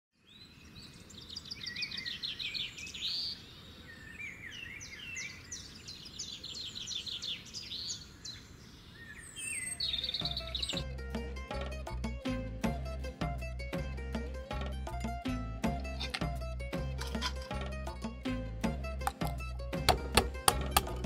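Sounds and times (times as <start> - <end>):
birds singing and chirping: 0.2 - 10.9.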